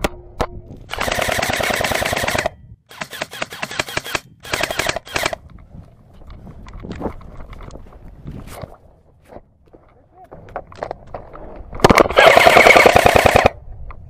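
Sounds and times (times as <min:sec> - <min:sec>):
airsoft rifle firing bursts: 0:00.9 - 0:05.4, 0:12.0 - 0:13.6.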